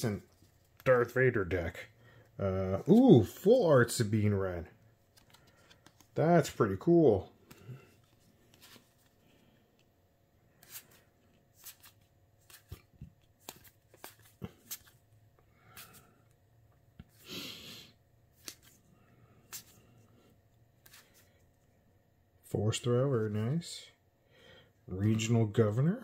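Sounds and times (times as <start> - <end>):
cards being flipped through: 5.1 - 6.6, 7.4 - 9.2, 10.5 - 15.0, 15.7 - 16.1, 18.4 - 18.8, 19.4 - 19.8, 20.8 - 21.3
cards rustling: 5.1 - 9.9, 10.5 - 16.2, 18.4 - 20.0, 20.8 - 21.4.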